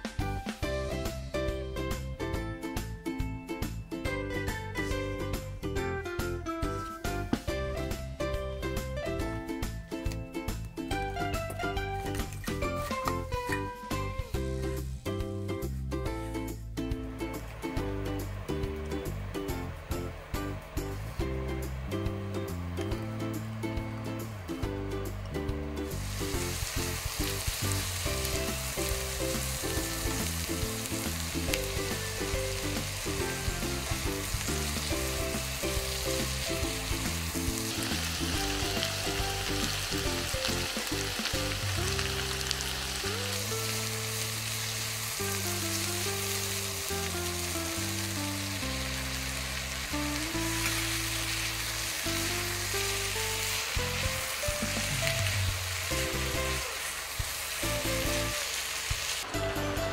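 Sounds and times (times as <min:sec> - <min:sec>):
soft background music: 0:00.0 - 0:58.6, 0:59.2 - 0:59.9
food sizzling in frying pan: 0:25.8 - 0:59.9.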